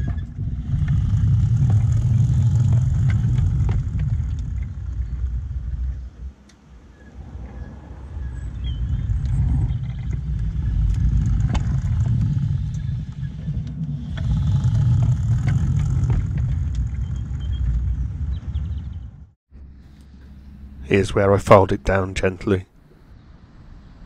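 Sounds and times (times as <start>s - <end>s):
clicks at rail joints: 0.0s - 6.6s, 9.2s - 18.0s
steel wheels rumbling on rail: 0.0s - 21.6s.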